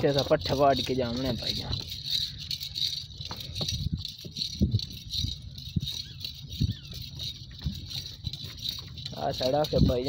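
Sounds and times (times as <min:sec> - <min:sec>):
cart rattling on dirt track: 0:00.0 - 0:10.0
light jingle: 0:00.0 - 0:10.0.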